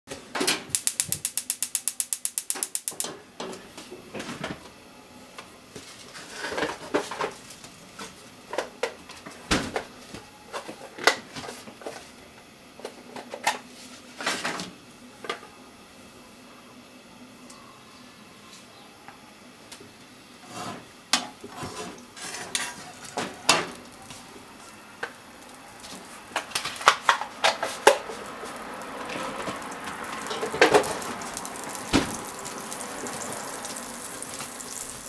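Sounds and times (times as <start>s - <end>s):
gas stove igniter clicking: 0.7s - 3.2s.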